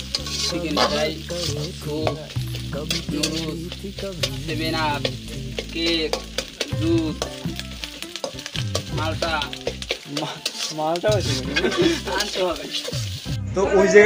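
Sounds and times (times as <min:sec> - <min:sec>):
utensil scraping metal pot: 0:00.0 - 0:13.3
food sizzling: 0:00.0 - 0:14.0
song with singing: 0:00.3 - 0:07.5.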